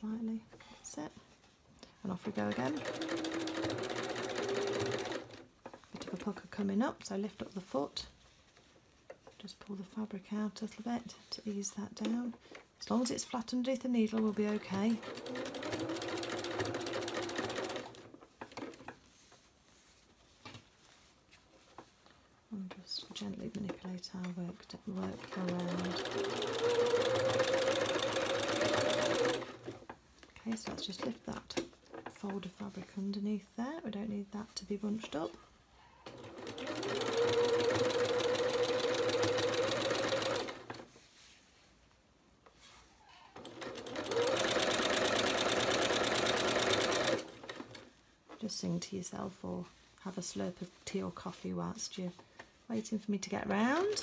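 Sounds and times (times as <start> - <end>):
sewing machine stitching: 2.1 - 6.3, 14.1 - 18.9, 24.9 - 29.9, 36.0 - 40.9, 43.4 - 47.9, 53.4 - 54.0.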